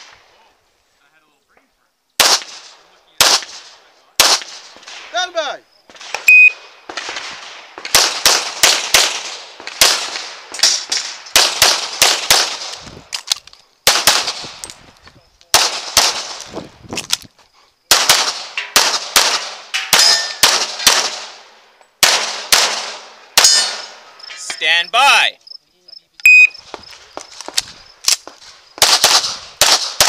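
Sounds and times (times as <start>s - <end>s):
rapid pistol fire: 2.2s - 5.1s, 5.9s - 12.8s, 13.8s - 14.6s, 15.5s - 16.5s, 17.9s - 23.9s, 28.8s - 30.0s
steel targets ringing: 19.8s - 20.4s, 23.4s - 24.8s.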